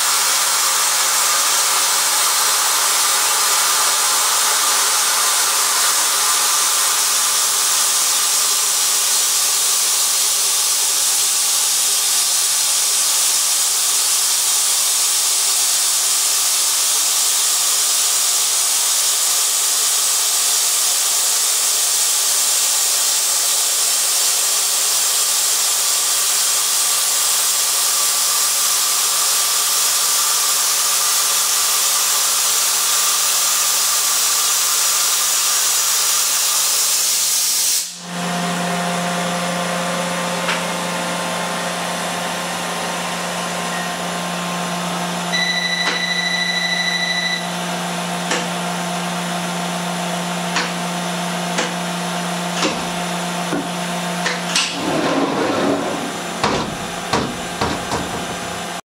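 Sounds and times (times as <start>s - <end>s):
loud steady hiss: 0.0s - 38.1s
milling machine cutting metal: 0.1s - 21.4s, 50.3s - 58.8s
brief high tone: 45.3s - 47.5s
machine hum: 51.4s - 58.8s.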